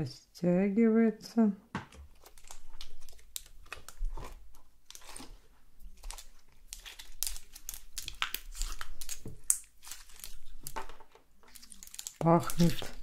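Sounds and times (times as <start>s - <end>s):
slime crackling and popping: 2.2s - 10.8s, 11.4s - 13.0s.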